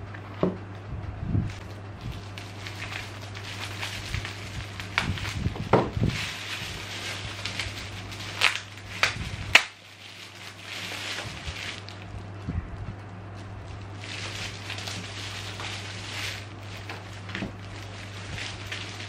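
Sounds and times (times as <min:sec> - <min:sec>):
bubble wrap crinkling: 0:01.3 - 0:19.0
scissors cutting plastic: 0:01.6 - 0:12.1.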